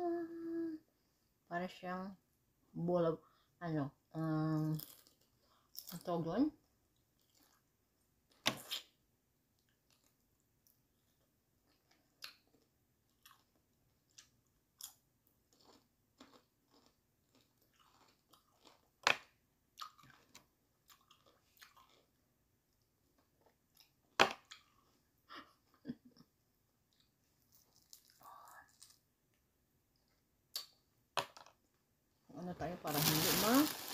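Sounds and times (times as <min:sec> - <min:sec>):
close-up chewing: 0:11.7 - 0:19.0, 0:19.8 - 0:22.2.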